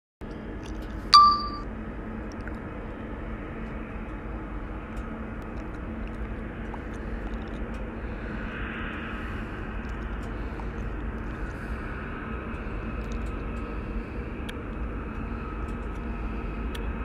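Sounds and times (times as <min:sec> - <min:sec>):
bright metallic ding: 0:01.2 - 0:01.6.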